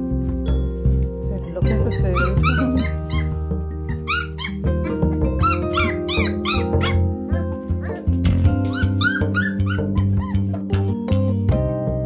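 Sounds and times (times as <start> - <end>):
background music with low notes: 0.0 - 12.0
puppies yipping and whimpering: 1.6 - 10.6.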